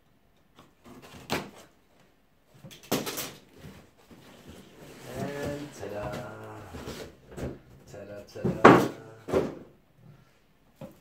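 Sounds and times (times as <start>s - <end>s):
cardboard box scraping: 3.8s - 7.2s.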